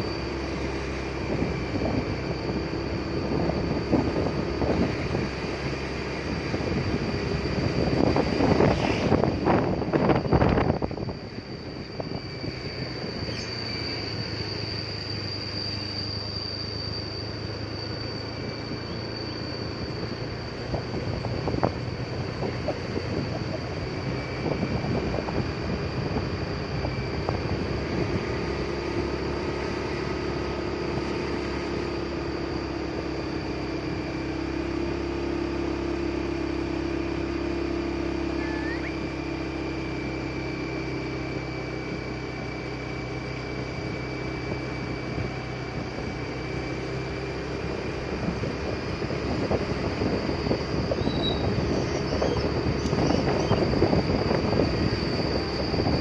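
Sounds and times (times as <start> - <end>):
road noise: 0.0 - 56.0
vehicle engine running: 0.0 - 56.0
wind buffeting the microphone: 6.3 - 13.3, 20.6 - 28.4, 48.2 - 56.0.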